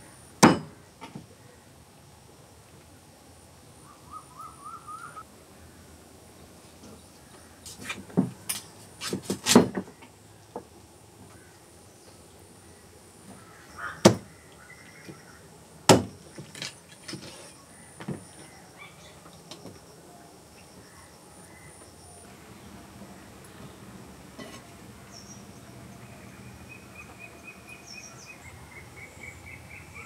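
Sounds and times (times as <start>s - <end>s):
bird chirping: 3.8s - 5.2s, 25.1s - 30.0s
cleaver chopping on wooden block: 15.9s - 16.1s.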